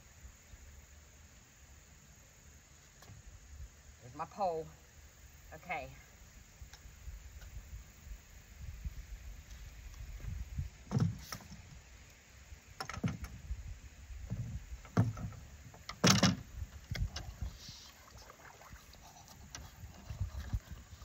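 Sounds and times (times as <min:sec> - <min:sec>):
knocks on wooden dock: 0:10.9 - 0:11.2, 0:14.2 - 0:15.4
water splashing: 0:17.0 - 0:21.0.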